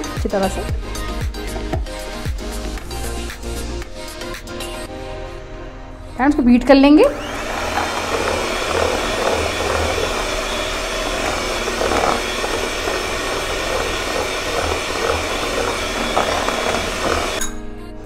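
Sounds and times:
electric hand mixer running: 7.0 - 17.5.

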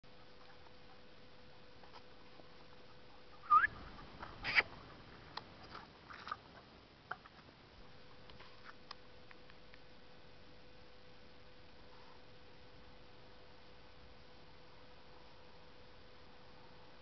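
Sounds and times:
puppy yelping: 3.4 - 3.8, 4.4 - 4.7.

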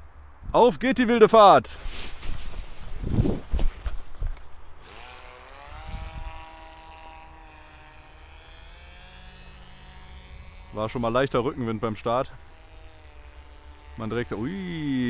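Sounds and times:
electric motor and propeller whine: 1.9 - 15.0
wind buffeting microphone: 2.2 - 4.6, 5.8 - 6.4.

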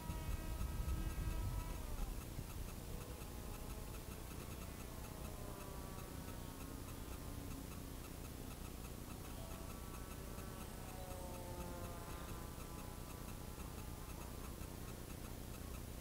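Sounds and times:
wind buffeting microphone: 0.0 - 3.0
faint distant whine: 0.0 - 16.0
faint regular ticking: 0.0 - 16.0.

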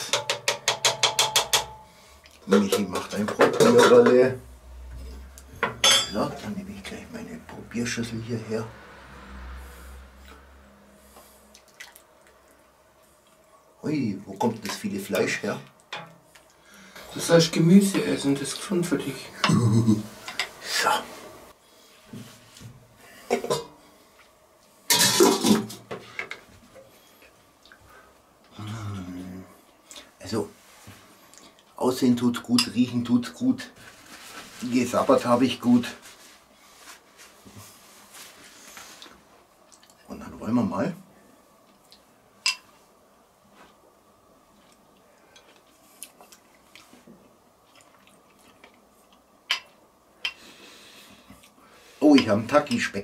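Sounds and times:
person chewing: 47.6 - 50.4.

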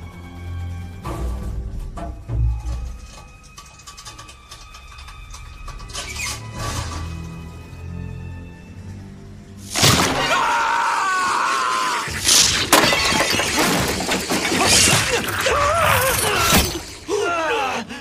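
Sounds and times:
sharp impacts: 9.6 - 10.6
glass shattering: 9.6 - 10.7, 12.1 - 17.1
people yelling in alarm: 10.2 - 12.1.

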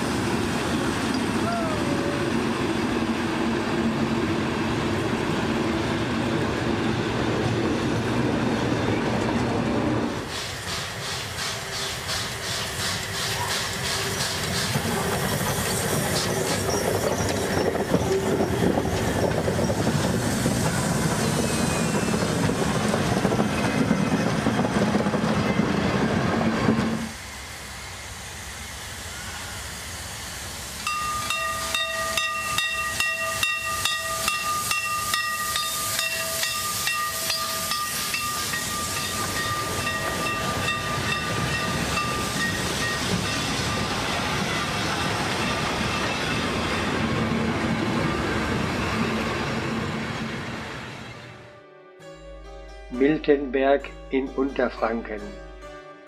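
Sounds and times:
steam locomotive chuffing: 0.0 - 51.0
steam hissing: 10.1 - 49.5
train wheels clattering: 10.2 - 27.0.

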